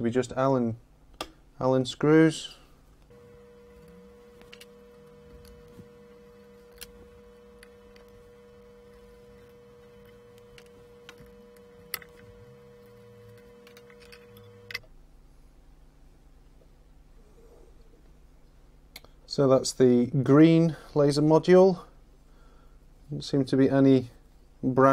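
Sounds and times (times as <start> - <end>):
faint steady hum: 0.0 - 24.9
allen key and screws clicking: 13.3 - 14.9.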